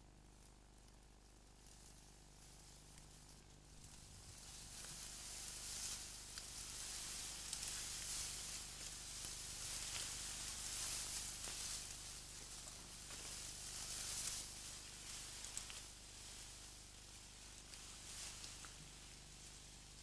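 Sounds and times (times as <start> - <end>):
faint ticks: 0.2 - 4.1, 15.4 - 15.9
tall grass rustling: 1.6 - 20.0.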